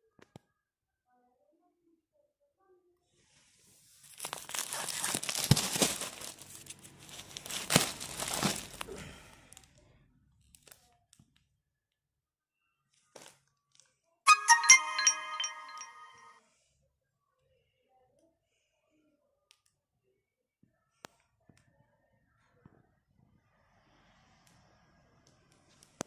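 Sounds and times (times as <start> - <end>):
plastic wrapping crinkling: 4.0 - 9.0
bright ringing chime: 14.3 - 16.4.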